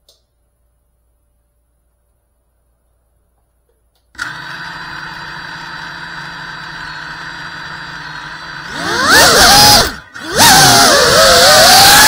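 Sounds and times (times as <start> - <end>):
drone motors whining: 4.2 - 12.0.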